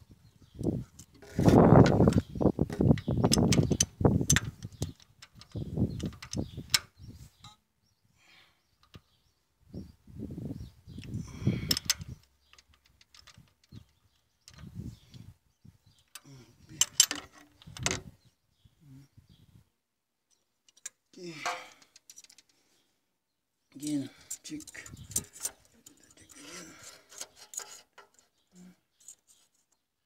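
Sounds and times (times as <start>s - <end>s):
microphone handling noise: 0.7s - 4.8s.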